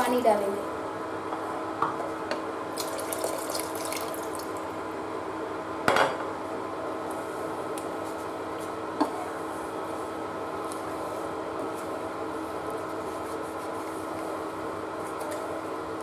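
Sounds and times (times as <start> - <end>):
water pouring into pot: 2.8 - 4.7
thick lentils bubbling: 2.8 - 4.8.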